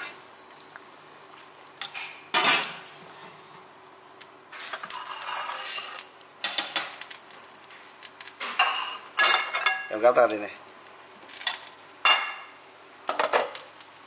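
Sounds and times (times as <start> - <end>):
dishes and utensils clattering: 1.8 - 2.8, 4.6 - 7.0, 8.4 - 9.9, 13.1 - 13.6
clinks and scraping: 4.6 - 6.9.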